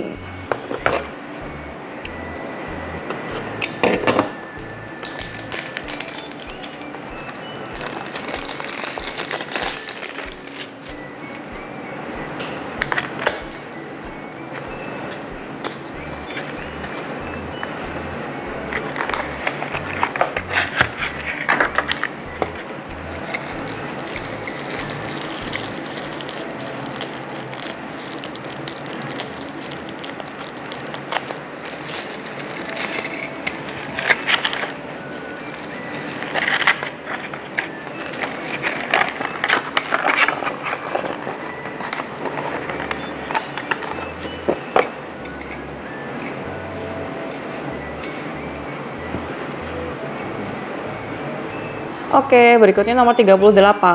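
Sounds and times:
cardboard box and plastic crinkling: 3.3s - 11.5s, 18.5s - 46.4s.

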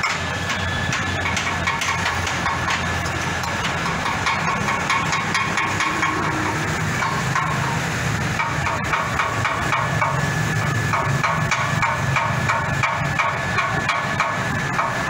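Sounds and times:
concrete mixer metallic clanks: 0.0s - 15.0s.

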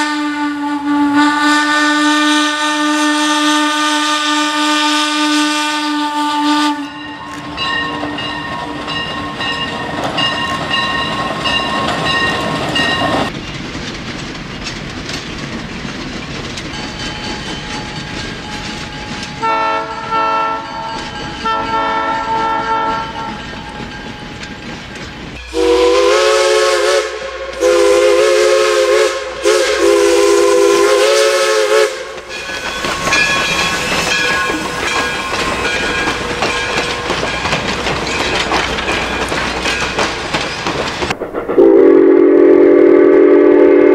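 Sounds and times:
train horn blasts: 0.0s - 7.4s, 19.4s - 23.4s, 25.4s - 32.3s, 41.6s - 43.9s
train wheels clicking over rail joints: 7.0s - 41.4s.

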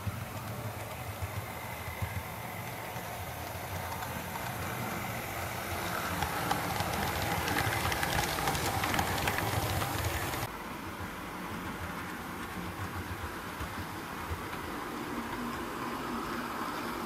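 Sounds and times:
model train motor hum: 0.0s - 10.5s
wheels clicking over rail joints: 0.0s - 10.5s.

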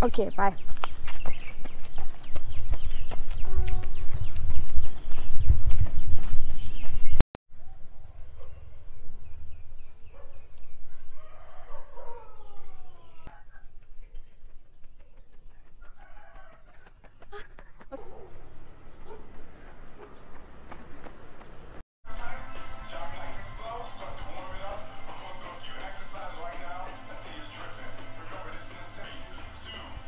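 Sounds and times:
rooster crowing: 10.9s - 13.3s, 15.8s - 17.0s.

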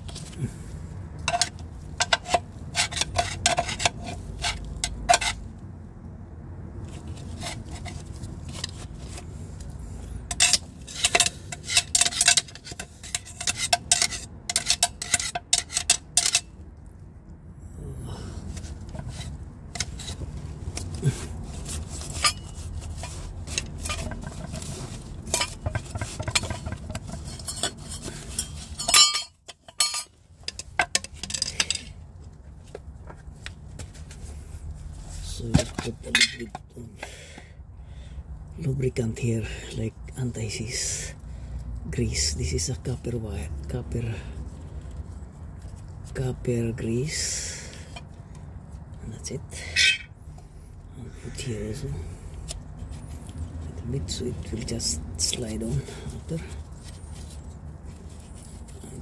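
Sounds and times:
light metal clinks and scraping: 1.2s - 5.5s, 10.3s - 16.6s, 18.5s - 37.2s, 44.0s - 59.0s.

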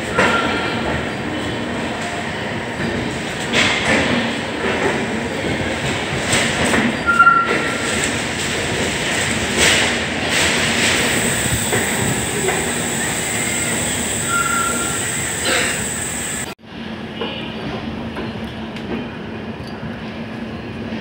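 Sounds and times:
train coaches running on rails: 0.0s - 21.0s
high wheel squeals: 11.2s - 16.5s.

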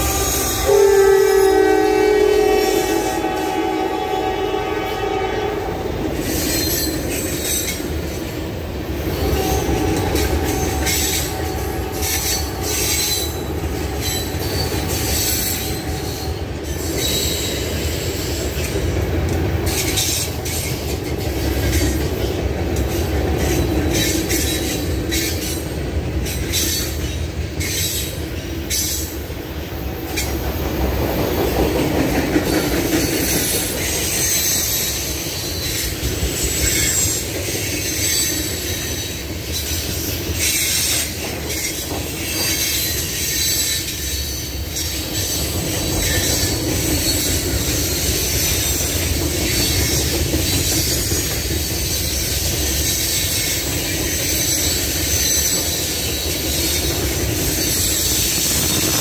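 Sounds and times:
high wheel squeal: 0.0s - 1.9s, 9.1s - 18.6s, 33.2s - 59.0s
freight train rumbling: 0.0s - 59.0s
wheels clacking over rail joints: 6.1s - 59.0s.

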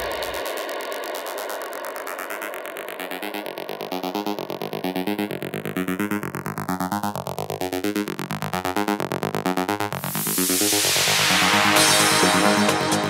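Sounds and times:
pulsing synthesizer chord: 9.9s - 13.0s.

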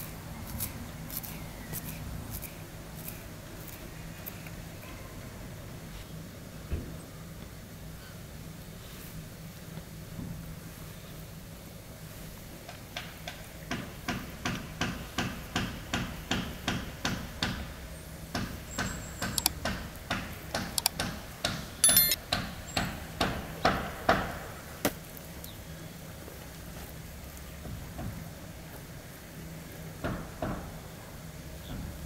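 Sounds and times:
sharp ringing clack: 21.8s - 22.2s.

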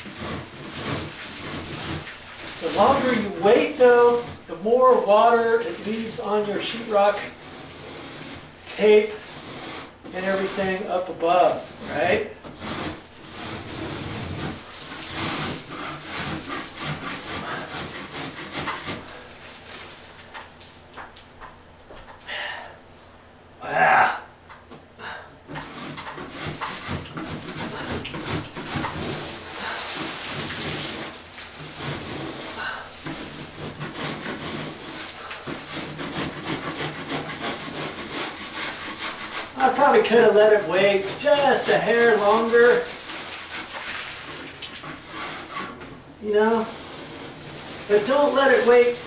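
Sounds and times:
scraper blade scraping ceiling: 0.0s - 21.2s, 25.0s - 49.0s.

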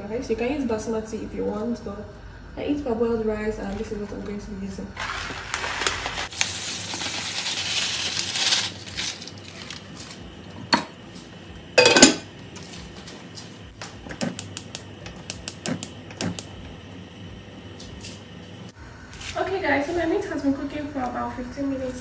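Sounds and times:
rice poured into pot: 5.0s - 10.2s
glass lid clattering on pot: 11.8s - 12.3s
gas hob knob clicking: 14.2s - 16.5s.

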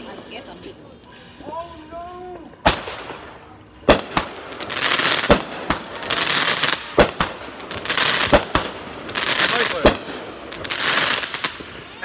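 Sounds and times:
firework crackling: 0.0s - 12.0s
firework bangs overhead: 2.6s - 12.0s.

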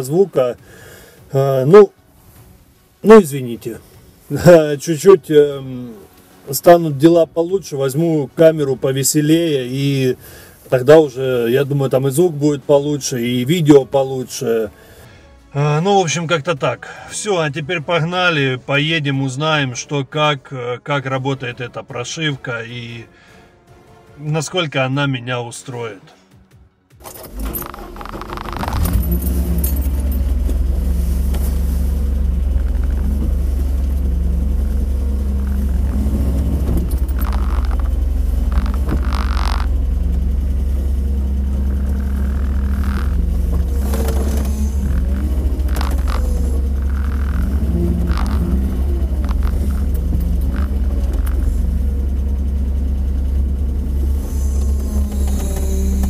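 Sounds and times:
car engine humming: 0.0s - 15.0s, 27.0s - 56.0s
short knocks and clicks: 35.4s - 39.8s.

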